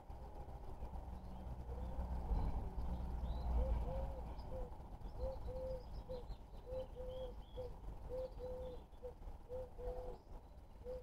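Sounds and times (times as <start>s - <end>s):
small birds chirping: 0.0s - 11.0s
dove cooing: 3.5s - 11.0s.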